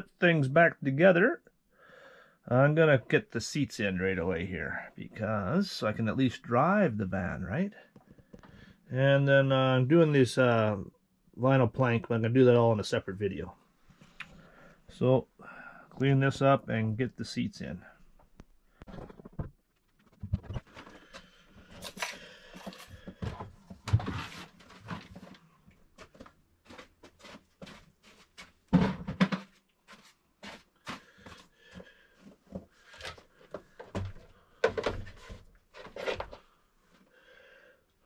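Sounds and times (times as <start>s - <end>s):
objects knocking and rattling: 18.9s - 21.0s, 28.7s - 29.6s, 33.5s - 36.4s.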